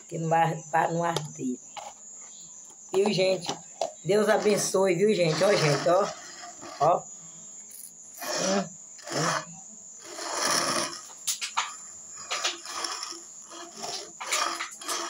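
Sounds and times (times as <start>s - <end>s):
sucking and slurping: 4.2s - 7.0s, 8.2s - 11.2s, 12.2s - 15.0s.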